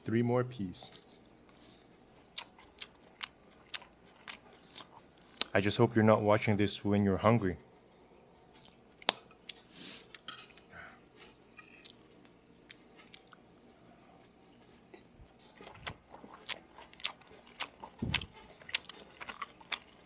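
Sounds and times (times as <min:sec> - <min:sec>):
close chewing with wet smacking: 0:02.2 - 0:05.6, 0:08.6 - 0:10.2, 0:11.8 - 0:13.5, 0:14.2 - 0:20.0.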